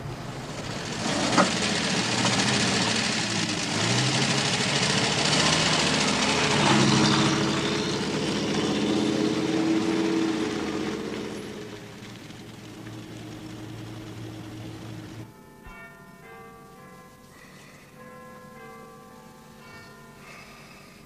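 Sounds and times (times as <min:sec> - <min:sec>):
car engine running: 0:00.0 - 0:15.3.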